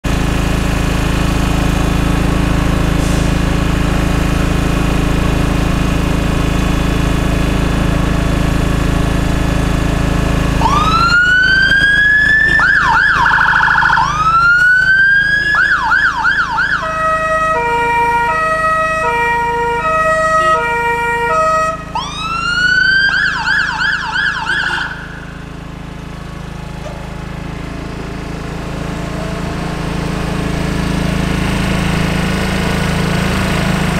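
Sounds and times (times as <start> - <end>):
diesel engine running: 0.0 - 33.9
siren wailing and yelping: 10.6 - 25.4
two-tone air horns: 16.9 - 22.0.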